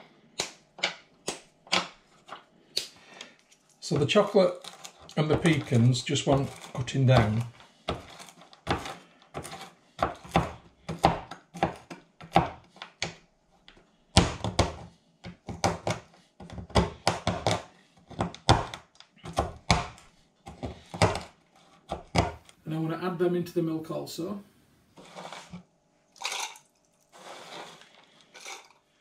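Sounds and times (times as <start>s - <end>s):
knife chopping on board: 6.3s - 12.7s, 14.1s - 21.3s.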